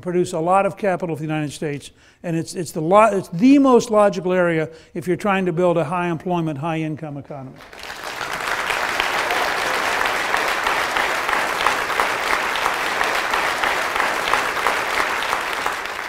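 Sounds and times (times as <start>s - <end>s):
large audience applauding: 7.6s - 16.0s.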